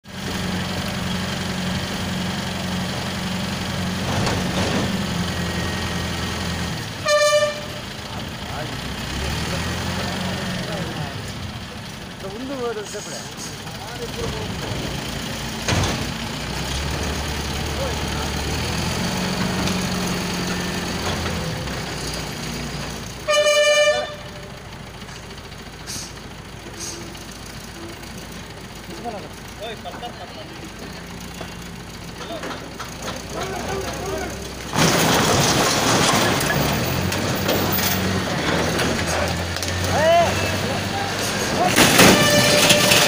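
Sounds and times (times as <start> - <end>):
crane engine idling: 0.1 - 43.0
vehicle horn: 7.0 - 8.0, 23.2 - 24.6, 41.8 - 43.0.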